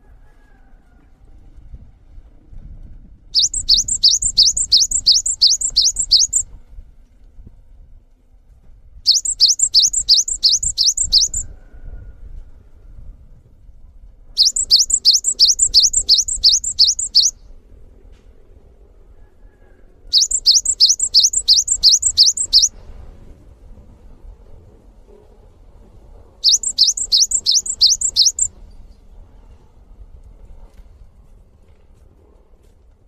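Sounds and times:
bird singing high sweeping notes: 3.4 - 6.4, 9.1 - 11.4, 14.4 - 17.4, 20.1 - 22.7, 26.4 - 28.5.

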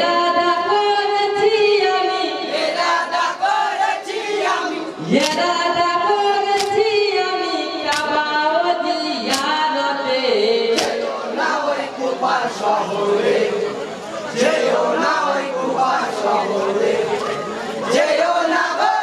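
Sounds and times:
men singing together: 2.5 - 5.4, 10.6 - 19.0
sharp chest slaps: 5.2 - 5.4, 6.6 - 6.8, 10.8 - 11.0.

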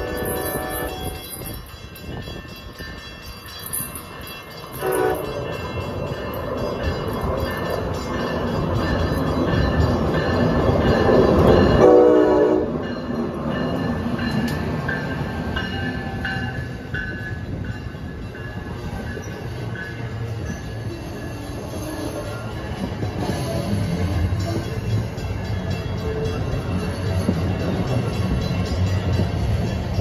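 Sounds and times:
train horn: 0.0 - 1.4, 4.8 - 5.6, 11.4 - 12.9
train rumbling: 0.0 - 30.0.

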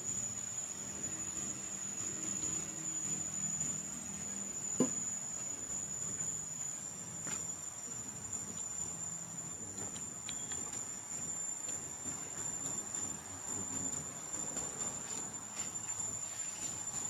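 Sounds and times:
insects droning: 0.0 - 17.0.

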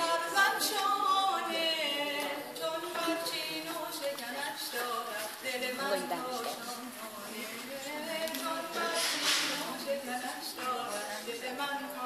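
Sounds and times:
woman singing unaccompanied: 0.0 - 12.0.

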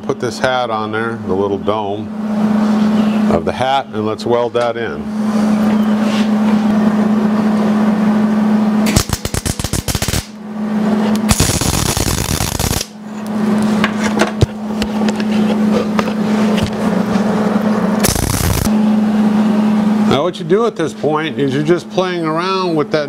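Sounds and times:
steady low hum: 0.0 - 23.0
welder arc crackling: 8.9 - 10.4, 11.2 - 13.0, 18.0 - 18.7.

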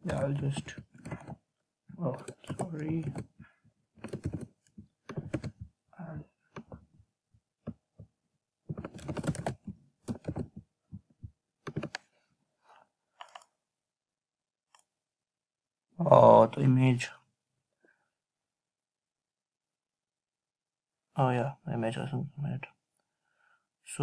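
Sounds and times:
typing on computer keyboard: 0.0 - 1.4, 2.2 - 3.4, 4.0 - 5.7, 8.7 - 10.6, 11.7 - 12.0.

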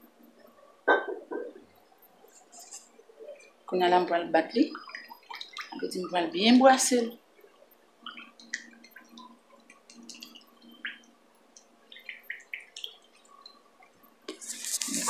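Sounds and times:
hand stirring wet mixture: 4.6 - 6.3, 8.0 - 15.0.

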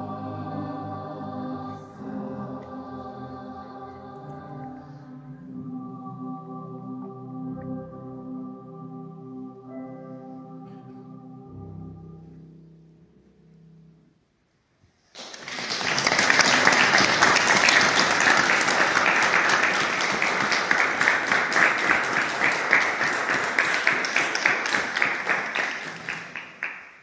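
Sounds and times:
audience applauding: 15.1 - 27.0.

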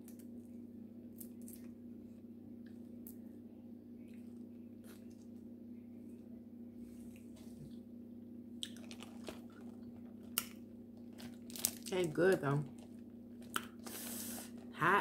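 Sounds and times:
low hum: 0.0 - 15.0
chewing: 8.6 - 11.9, 12.6 - 13.9
seafood shells cracking: 8.6 - 13.8.

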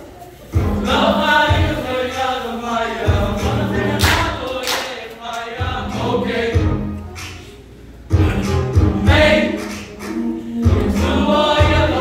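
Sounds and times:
mixed choir singing: 0.5 - 7.2, 8.2 - 12.0.

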